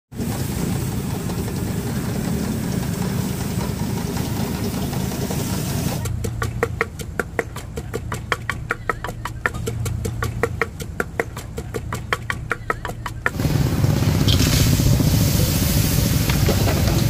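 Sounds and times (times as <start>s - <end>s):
gas wok burner rushing: 0.1s - 6.1s, 13.4s - 17.0s.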